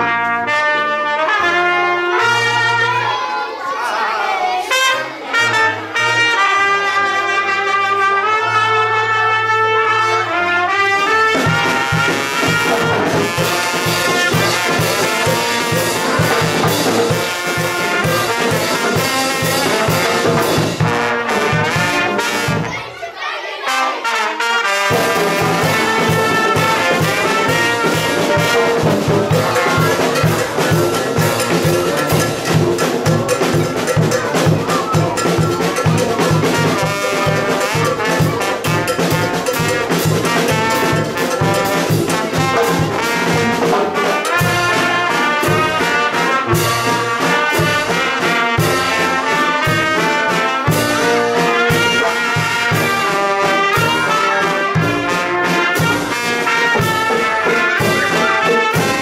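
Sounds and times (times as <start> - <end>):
brass band playing: 0.0 - 59.0
bass drum and snare drum beat: 10.7 - 22.8, 24.6 - 59.0.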